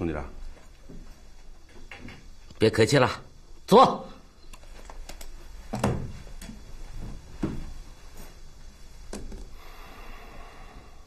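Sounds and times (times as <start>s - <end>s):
chairs knocking and scraping: 5.7s - 7.8s.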